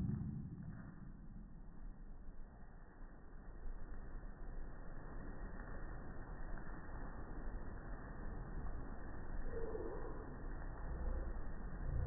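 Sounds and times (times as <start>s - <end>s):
faint deep drawn-out tone: 0.0s - 1.8s
low rumbling noise: 0.0s - 12.0s.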